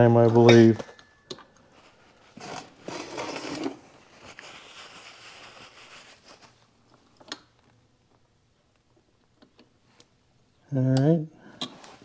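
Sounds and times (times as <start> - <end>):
soft rustle: 1.7 - 7.1.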